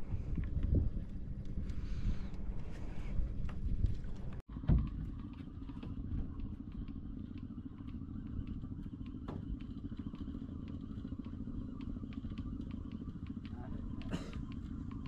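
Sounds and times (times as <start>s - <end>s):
boat engine running: 0.0s - 15.0s.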